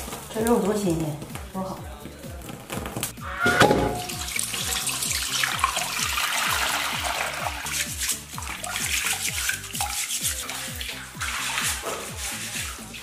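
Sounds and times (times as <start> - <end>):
background music with beat: 0.0 - 13.0
tap water running into basin: 3.8 - 13.0
meat scrubbed by hand: 4.4 - 13.0.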